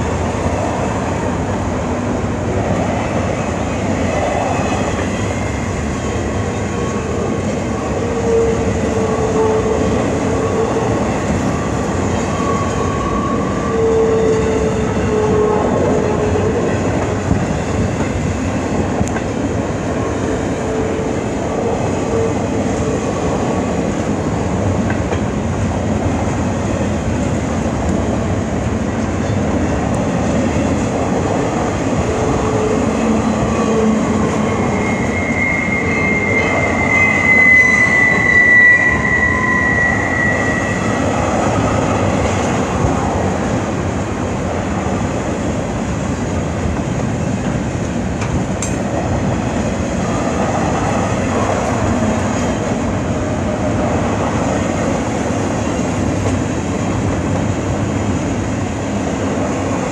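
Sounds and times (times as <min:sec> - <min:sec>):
freight train wheels rumbling: 0:00.0 - 0:59.9
high-pitched wheel squeal: 0:33.9 - 0:41.1.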